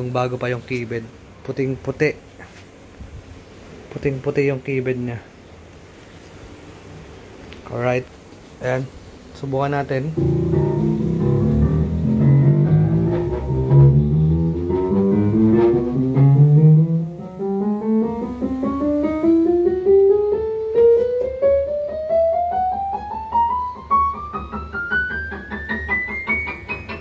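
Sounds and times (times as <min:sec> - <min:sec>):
synthesizer notes climbing in pitch: 0:10.2 - 0:24.2.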